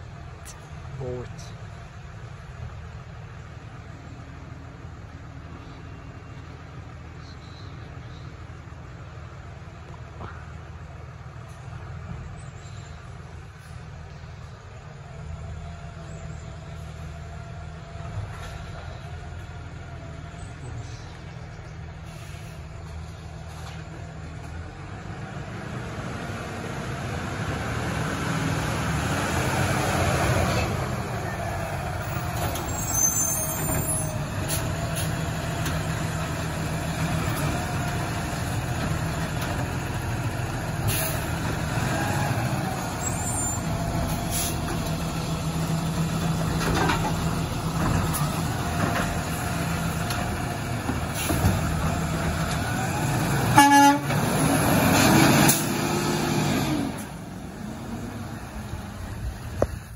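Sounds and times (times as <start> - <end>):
garbage truck engine passing: 7.8 - 59.9
air brake hiss: 22.0 - 22.6.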